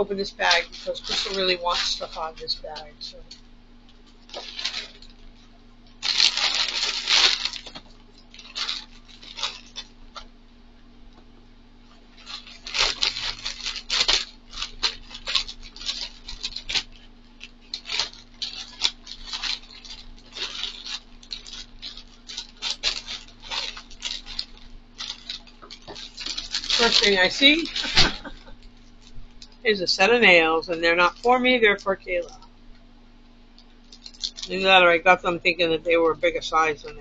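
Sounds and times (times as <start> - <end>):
plastic bag crinkling: 0.0 - 10.4, 11.8 - 32.8, 33.5 - 37.0.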